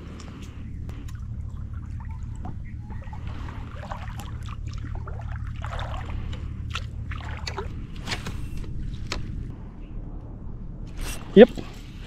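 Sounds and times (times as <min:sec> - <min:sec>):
seawater sloshing from wading: 0:00.0 - 0:08.9
steady low rumble: 0:00.0 - 0:12.0.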